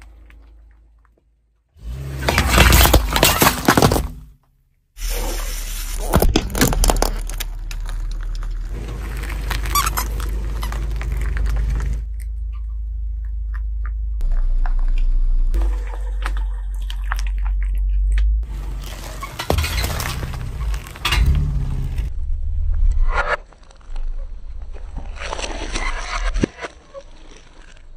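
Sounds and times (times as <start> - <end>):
car low rumble: 0.0 - 27.7
squeeze toy squeaking and cracking: 5.0 - 12.7.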